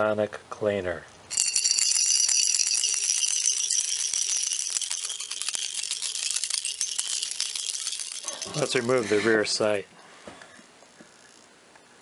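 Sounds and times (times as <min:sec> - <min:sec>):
metal parts rattling in shaken jar: 0:01.3 - 0:09.3.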